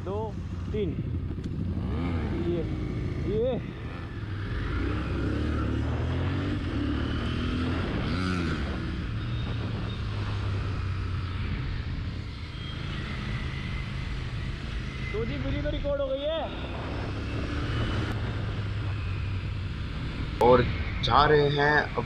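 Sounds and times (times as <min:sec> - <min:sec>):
motorcycle engine drone: 0:00.0 - 0:22.0
other motorcycles riding: 0:00.0 - 0:22.0
wind noise on microphone: 0:01.0 - 0:12.3, 0:15.7 - 0:21.1.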